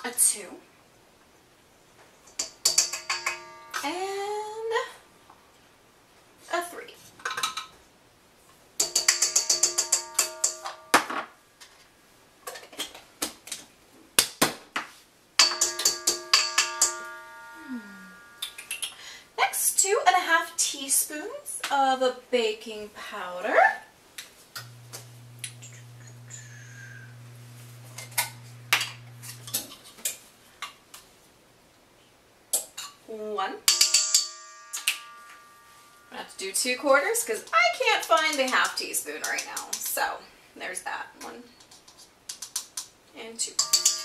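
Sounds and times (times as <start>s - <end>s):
metal utensils clinking: 2.3s - 3.9s, 8.8s - 11.1s, 15.4s - 18.8s, 24.6s - 29.9s, 43.5s - 44.0s
measuring spoon clinking: 2.4s - 3.8s, 8.8s - 10.9s, 43.6s - 44.0s
ringing metallic taps: 2.4s - 3.9s, 8.8s - 11.1s, 15.4s - 17.6s, 33.7s - 35.9s, 43.6s - 44.0s
steady low hum: 24.6s - 29.8s.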